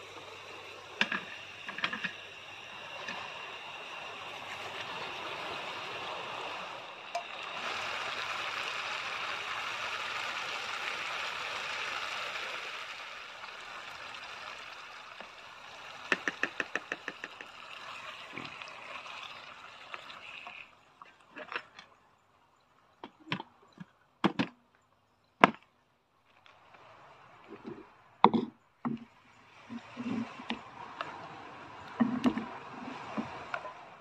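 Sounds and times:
gas burner hissing: 0.0s - 20.7s
taps against a pan: 16.1s - 17.5s.

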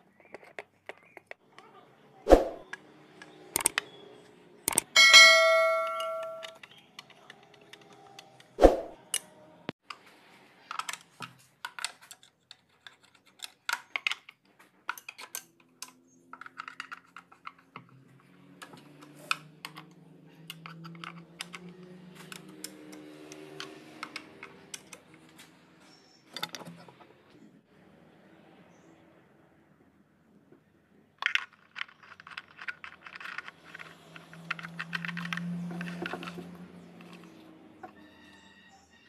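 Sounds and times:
socket wrench clicking: 3.6s - 3.8s, 4.7s - 5.0s.

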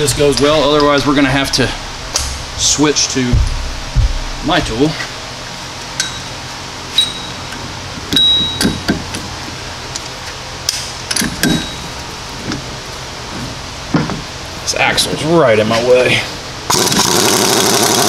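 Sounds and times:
metal clinks and knocks: 5.9s - 6.4s, 7.0s - 9.2s, 11.1s - 12.7s
short high metallic ring: 6.0s - 7.5s.

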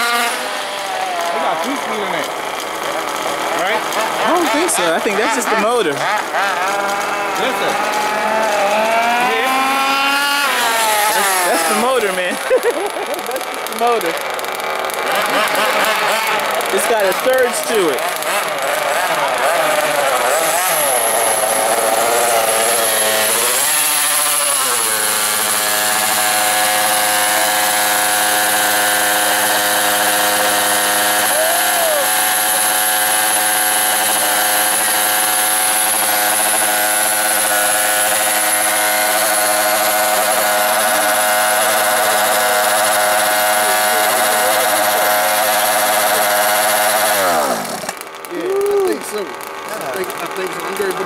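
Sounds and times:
two-stroke engine idling: 0.0s - 51.0s.

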